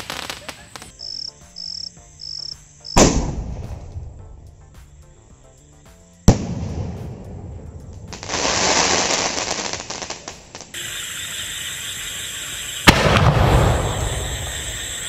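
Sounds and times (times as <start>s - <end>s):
firework crackling pops: 0.0s - 1.0s, 3.0s - 4.2s, 6.2s - 15.0s
firework bang: 3.0s - 4.1s, 12.7s - 15.0s.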